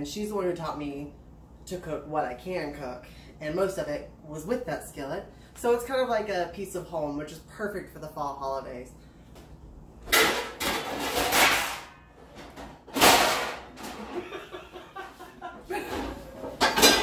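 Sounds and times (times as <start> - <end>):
pots and pans clattering: 10.1 - 14.5, 15.7 - 17.0.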